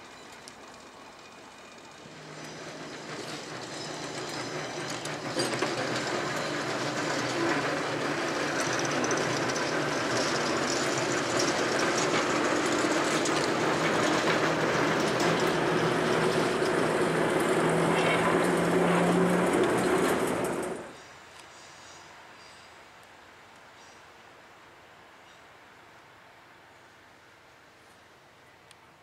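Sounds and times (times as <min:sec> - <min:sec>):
wheels clicking on rails: 0:00.0 - 0:21.0
diesel engine humming: 0:02.0 - 0:20.9.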